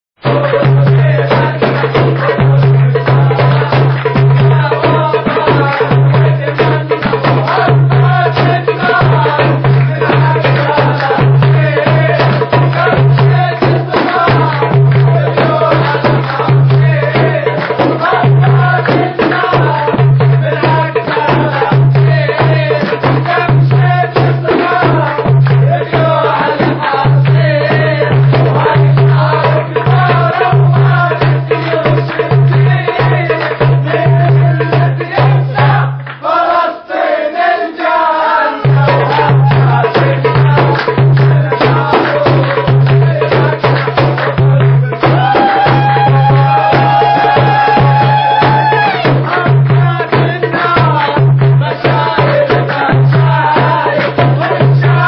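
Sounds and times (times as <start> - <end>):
fast drum beat: 0.2 - 36.8, 37.5 - 55.0
hand clapping: 1.3 - 19.8, 36.0 - 36.6, 38.8 - 51.2.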